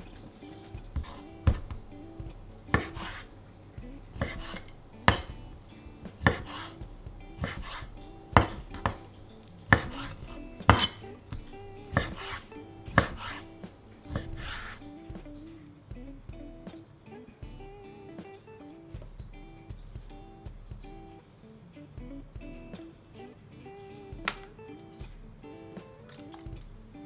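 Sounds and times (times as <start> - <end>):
knife striking a wooden board: 1.0 - 1.9, 2.7 - 3.3, 4.1 - 5.5, 6.1 - 6.7, 7.4 - 9.1, 9.7 - 13.4, 14.1 - 14.8.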